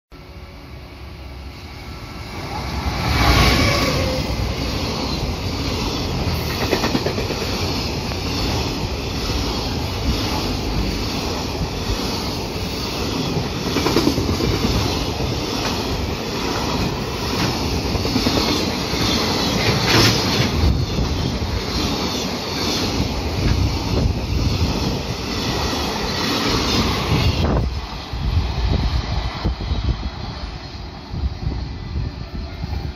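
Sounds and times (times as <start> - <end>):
wheels clattering on rails: 16.8 - 24.1.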